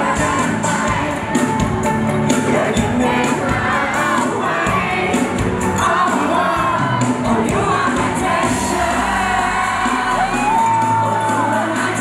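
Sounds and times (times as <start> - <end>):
band with drums and electric guitar: 0.0 - 12.0
men singing: 0.0 - 12.0
audience cheering: 9.7 - 12.0.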